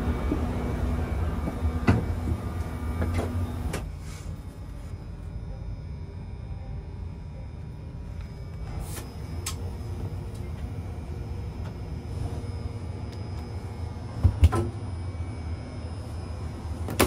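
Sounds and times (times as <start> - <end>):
train carriage rumble: 0.0 - 5.0.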